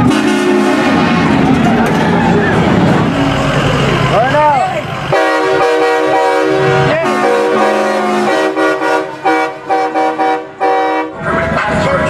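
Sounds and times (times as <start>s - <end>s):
musical truck horn: 0.0s - 1.0s, 5.1s - 11.8s.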